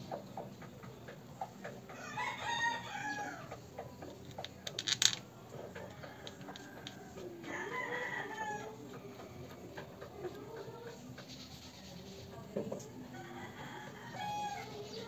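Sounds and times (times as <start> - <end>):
rooster crowing: 2.0 - 3.5, 5.8 - 8.8, 13.2 - 14.8.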